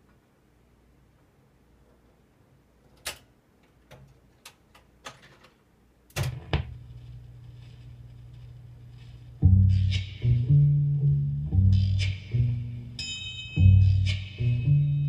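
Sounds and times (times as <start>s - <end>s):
steady low hum: 5.8s - 15.0s.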